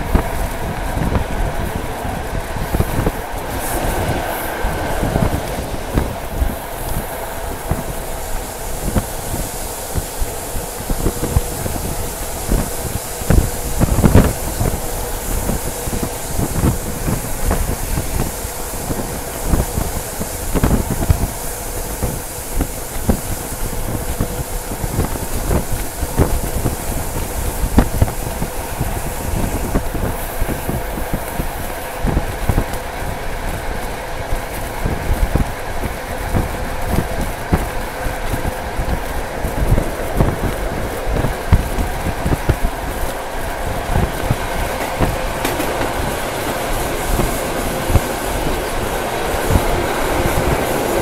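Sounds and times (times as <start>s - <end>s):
high rushing hiss: 0.0s - 51.0s
train rolling rumble: 0.0s - 51.0s
train wheels clattering over joints: 0.0s - 51.0s.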